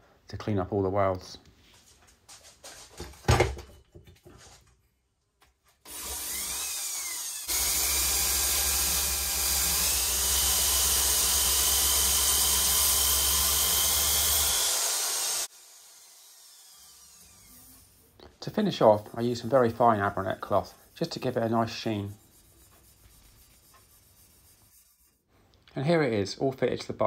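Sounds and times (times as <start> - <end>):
electric drill sanding metal pipe: 5.9 - 18.1.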